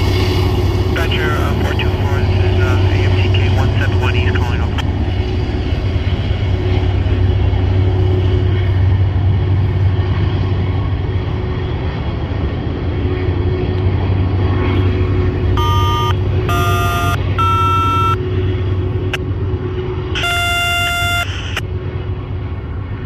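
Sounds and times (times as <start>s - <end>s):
steady low rumble: 0.0s - 23.0s
locomotive air horn blasts: 15.6s - 18.2s, 20.2s - 21.6s.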